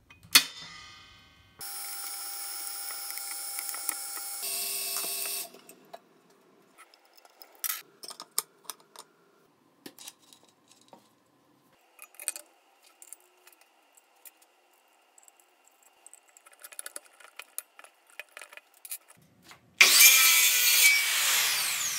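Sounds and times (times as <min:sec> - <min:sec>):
circular saw cutting wood: 0:19.8 - 0:21.9.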